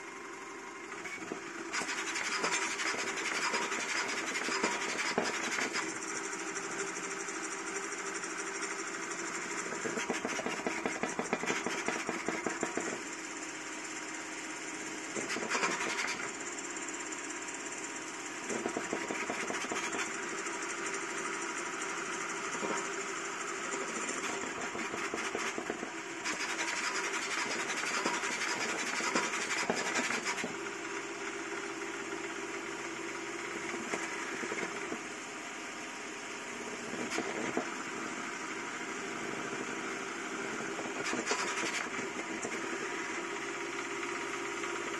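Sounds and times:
stepper motors buzzing and whining: 0.9s - 7.1s, 8.2s - 13.1s, 15.1s - 16.5s, 18.4s - 20.6s, 22.5s - 31.0s, 33.6s - 35.0s, 36.8s - 38.0s, 39.3s - 43.5s.

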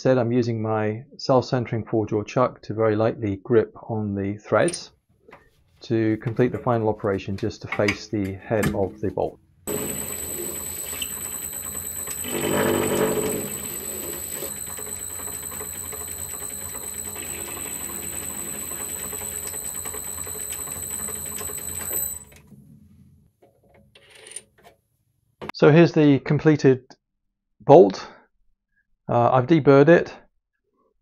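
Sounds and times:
metal lathe whining: 9.7s - 22.3s
lathe cutting steel: 12.1s - 14.9s.

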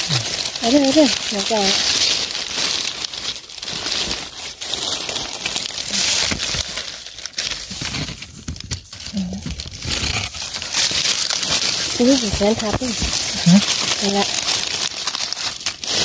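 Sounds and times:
dry leaves crackling and rustling: 0.0s - 16.0s.

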